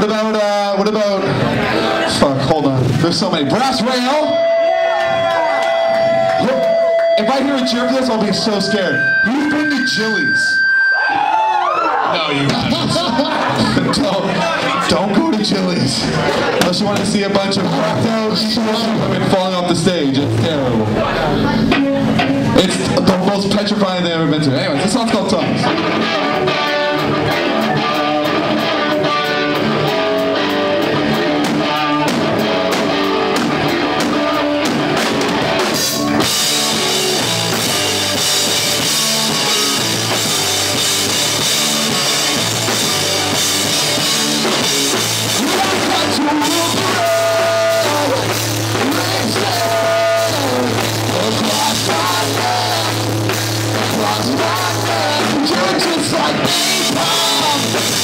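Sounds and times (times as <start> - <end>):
live rock band playing: 0.0 - 58.0
held low bass note: 20.2 - 23.0.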